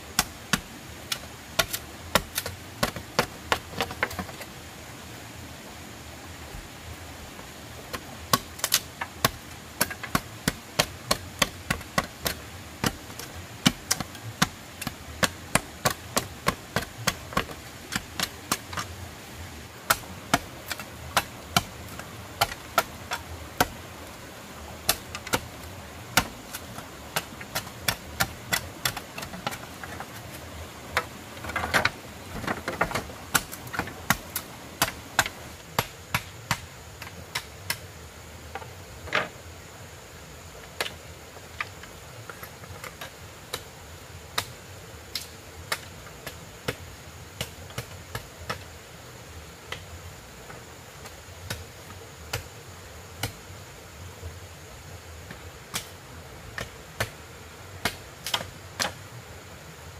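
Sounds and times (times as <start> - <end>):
hand tool striking wood: 0.1 - 4.5, 7.9 - 18.9, 19.9 - 23.8, 24.7 - 37.8.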